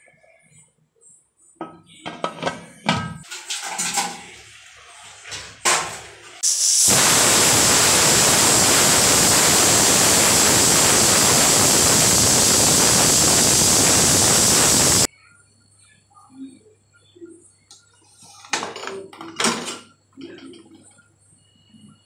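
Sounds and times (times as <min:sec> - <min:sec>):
pressure cooker shrill hiss: 0:05.8 - 0:15.1.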